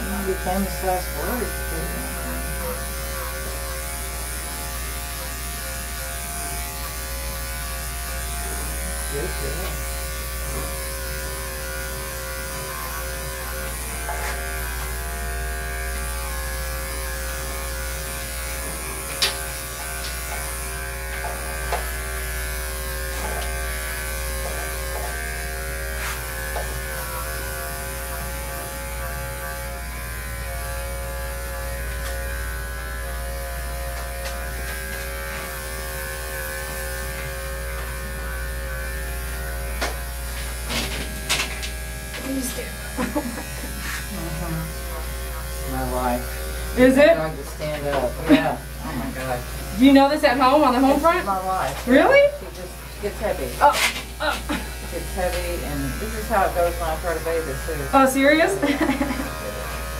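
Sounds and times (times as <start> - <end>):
electric clippers buzzing: 0.0 - 59.9.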